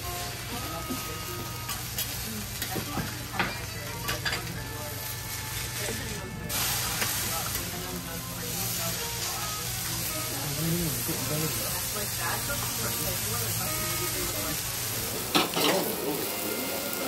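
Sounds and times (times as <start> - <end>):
food sizzling on a griddle: 0.0 - 17.0
metal spatulas scraping griddle: 15.3 - 16.2.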